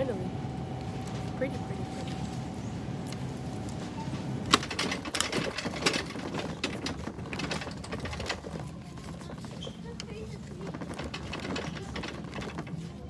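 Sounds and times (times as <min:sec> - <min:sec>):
shopping cart rattling: 0:04.2 - 0:13.0.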